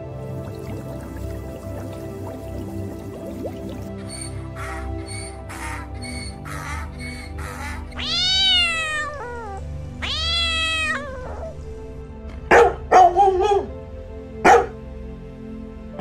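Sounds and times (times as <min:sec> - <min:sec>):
cat meowing: 0:07.5 - 0:11.6
dog barking: 0:12.5 - 0:13.8, 0:14.4 - 0:14.8.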